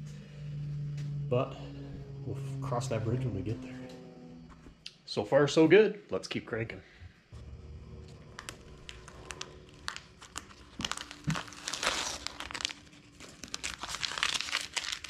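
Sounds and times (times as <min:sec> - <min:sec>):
masking tape peeling and crinkling: 0:08.0 - 0:15.0.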